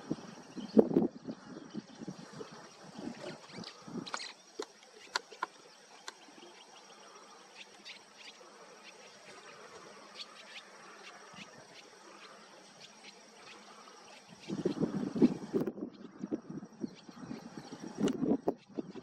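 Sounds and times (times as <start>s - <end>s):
soft steady hiss: 0.0s - 19.0s
high chirps and ticks: 3.1s - 16.1s.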